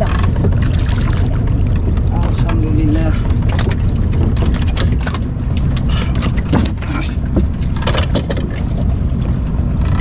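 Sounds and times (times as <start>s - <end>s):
boat engine low rumble: 0.0s - 10.0s
water splashes: 0.0s - 10.0s
knocks and clatter: 3.3s - 8.9s.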